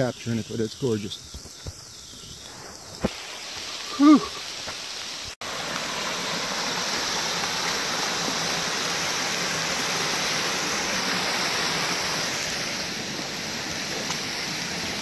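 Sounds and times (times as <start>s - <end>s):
stream cascading over rocks: 2.9s - 15.0s.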